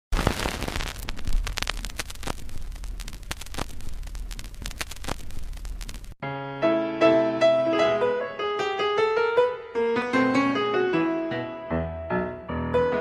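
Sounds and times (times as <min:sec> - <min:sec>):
film crackle hiss: 0:00.1 - 0:06.2
pops and clicks: 0:00.1 - 0:06.2
low hum: 0:00.2 - 0:06.2.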